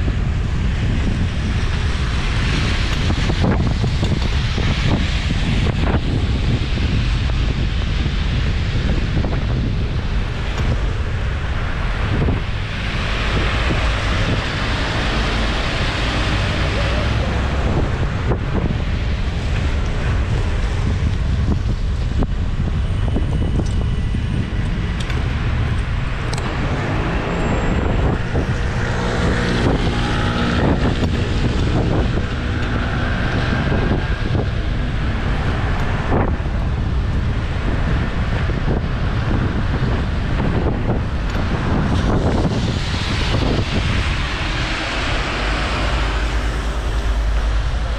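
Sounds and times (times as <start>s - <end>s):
passing vehicle hum: 0.0s - 47.9s
wind rumbling on microphone: 0.0s - 47.9s
hiss of wet road: 41.4s - 47.9s.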